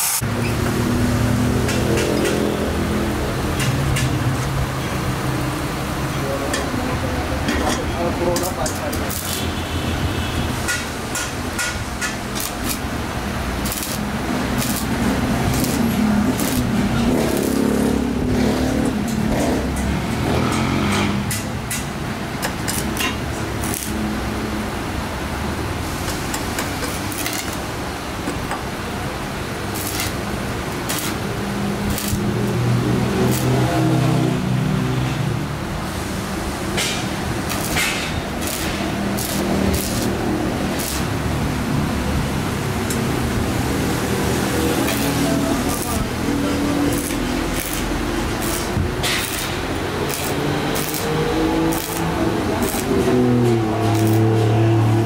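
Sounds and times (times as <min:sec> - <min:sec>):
welding arc crackling: 0:00.0 - 0:06.0, 0:08.2 - 0:55.0
sharp welding pops: 0:08.4 - 0:09.7, 0:10.7 - 0:12.9, 0:13.6 - 0:17.8, 0:21.2 - 0:24.0, 0:26.0 - 0:27.7, 0:29.7 - 0:31.3, 0:31.9 - 0:32.4, 0:33.2 - 0:33.6, 0:36.7 - 0:41.1, 0:44.8 - 0:46.1, 0:46.9 - 0:53.0, 0:53.9 - 0:54.3.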